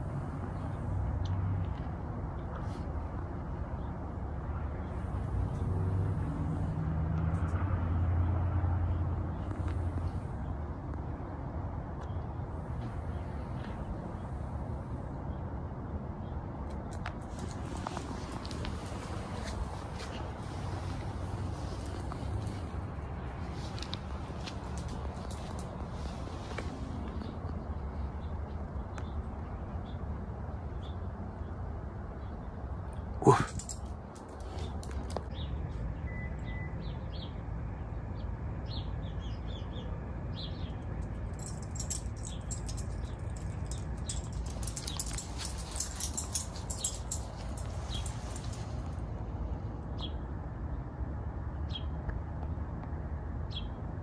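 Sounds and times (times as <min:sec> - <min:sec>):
vehicle passing: 0:00.0 - 0:11.8, 0:17.0 - 0:28.0, 0:33.2 - 0:36.0, 0:40.0 - 0:49.8.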